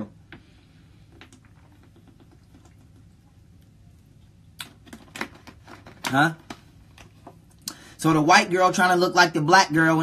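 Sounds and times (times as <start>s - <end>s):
drinking from plastic bottle: 1.0s - 3.3s.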